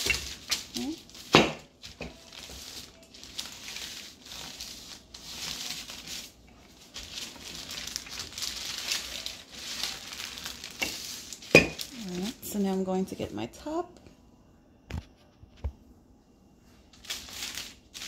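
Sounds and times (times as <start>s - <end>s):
rolling pin over dough: 0.0s - 12.9s
baking paper crinkling: 0.0s - 13.2s, 16.8s - 18.0s.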